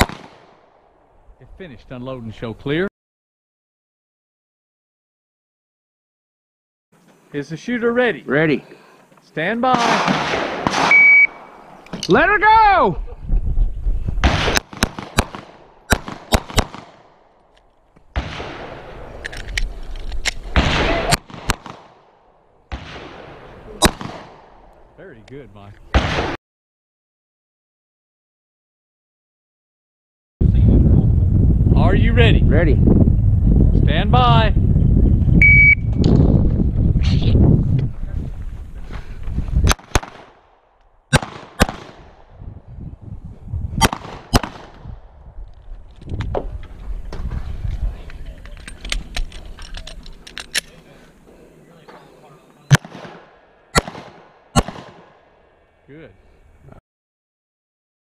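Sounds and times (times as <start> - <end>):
pistol shots: 0.0 - 0.6, 9.7 - 11.6, 14.2 - 17.2, 20.5 - 22.1, 22.7 - 24.6, 25.9 - 26.4, 39.7 - 40.5, 41.1 - 42.2, 43.8 - 44.8, 52.7 - 55.4
low rumble: 30.4 - 39.7.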